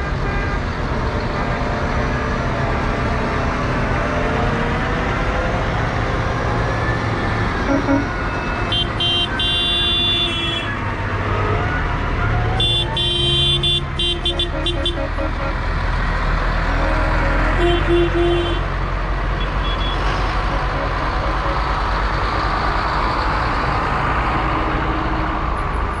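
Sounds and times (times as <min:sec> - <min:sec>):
tractor engines running: 0:00.0 - 0:26.0
short horn toots: 0:07.7 - 0:08.1.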